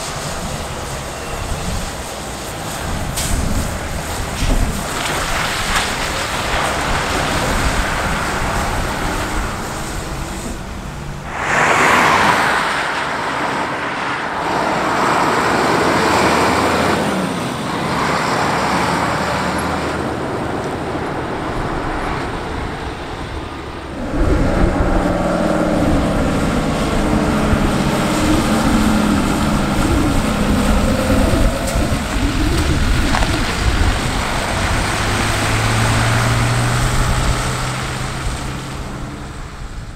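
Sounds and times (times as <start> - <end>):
road and tyre noise: 0.0 - 39.9
truck engines running: 0.0 - 39.9
truck engine humming low: 14.8 - 39.9.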